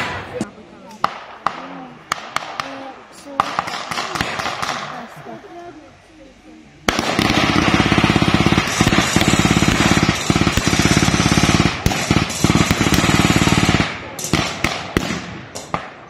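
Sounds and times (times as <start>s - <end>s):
single gunshots: 0.0s - 0.4s, 1.0s - 5.1s, 6.9s - 16.0s
machine gun firing rapid bursts: 3.4s - 4.9s, 6.9s - 15.9s.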